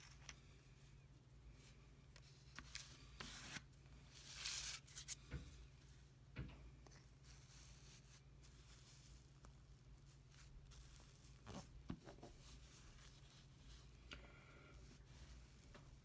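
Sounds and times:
low steady hum: 0:00.0 - 0:16.0
fingers rustling paper and plastic: 0:06.9 - 0:16.0.

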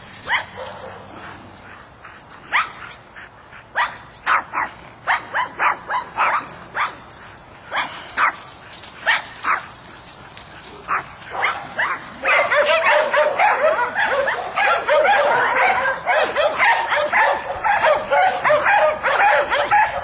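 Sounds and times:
small dog barking: 0:03.8 - 0:07.0, 0:09.0 - 0:09.7, 0:10.9 - 0:20.0.

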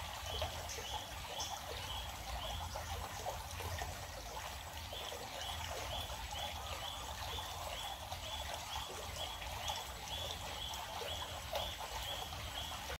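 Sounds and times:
river water flowing: 0:00.0 - 0:13.0.

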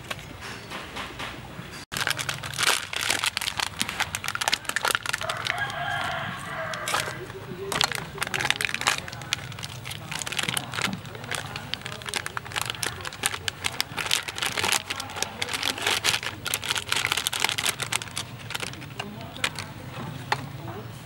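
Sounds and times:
foil packet crinkling: 0:01.9 - 0:19.8.

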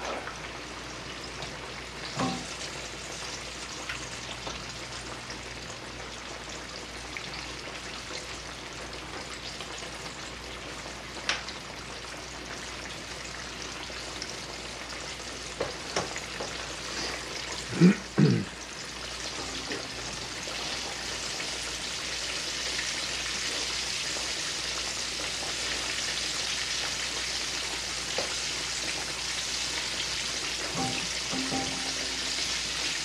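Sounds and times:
food sizzling in oil: 0:00.0 - 0:33.0.

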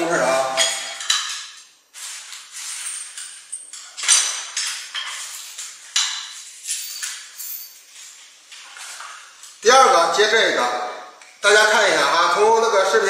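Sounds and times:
small metal parts clinking: 0:02.5 - 0:08.1.

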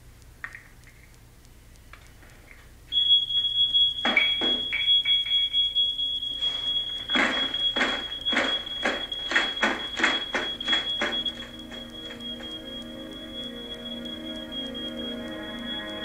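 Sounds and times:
smoke alarm tone: 0:02.9 - 0:16.0
loud irregular noises: 0:06.3 - 0:14.8.

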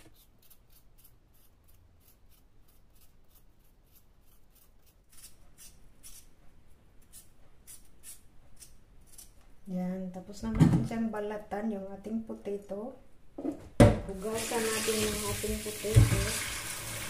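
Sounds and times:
peeler scraping potato skin: 0:00.0 - 0:06.3, 0:07.0 - 0:09.4.

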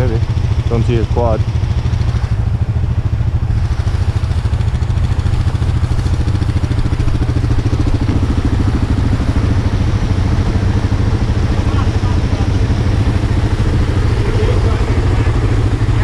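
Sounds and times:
engine running at low revs: 0:00.0 - 0:16.0.

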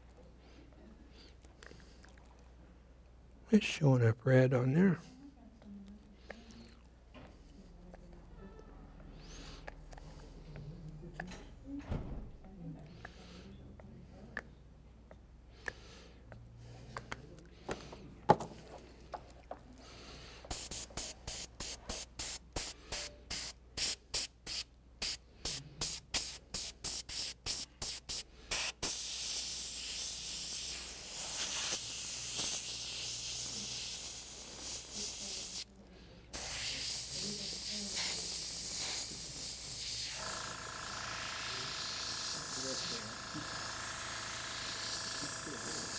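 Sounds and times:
airbrush hissing: 0:20.3 - 0:45.9.

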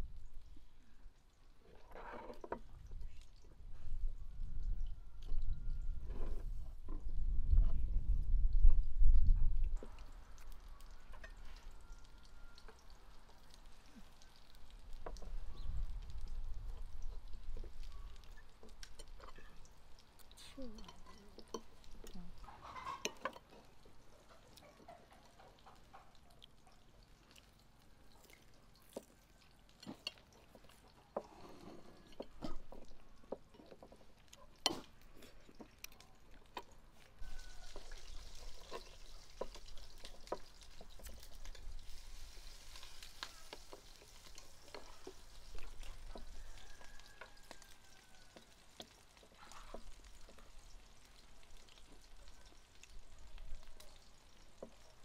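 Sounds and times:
cutlery clinking on plates: 0:22.5 - 0:23.7.

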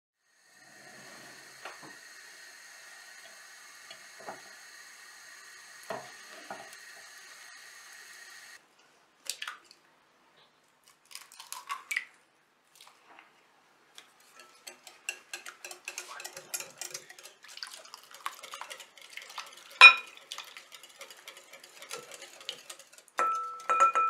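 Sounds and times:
batter sizzling in oil: 0:00.2 - 0:08.6, 0:14.2 - 0:23.7
fork clicking against pan: 0:14.3 - 0:17.4
eggs cracked against glass bowl: 0:19.8 - 0:20.1.

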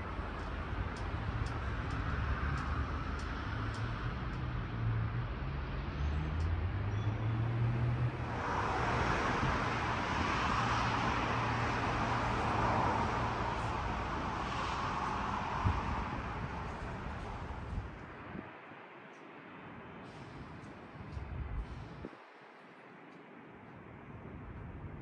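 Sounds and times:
rushing passing traffic: 0:00.0 - 0:23.1.

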